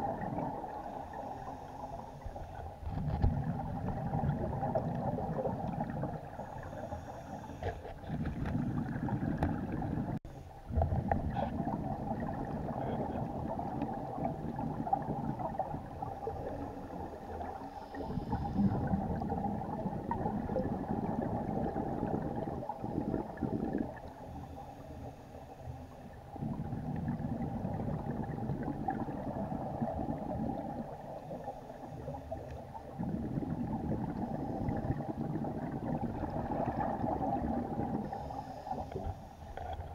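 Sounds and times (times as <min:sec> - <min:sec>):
underwater regulator bubbles: 0:00.0 - 0:39.9.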